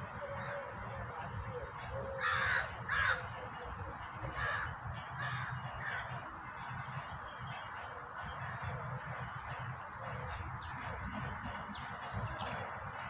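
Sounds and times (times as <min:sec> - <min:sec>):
harsh cawing bird calls: 0:00.2 - 0:00.7, 0:02.0 - 0:03.4, 0:04.3 - 0:06.2.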